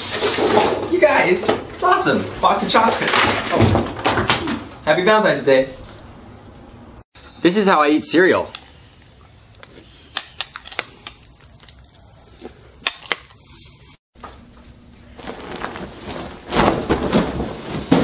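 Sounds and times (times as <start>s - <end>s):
rustling noise: 14.2s - 18.0s.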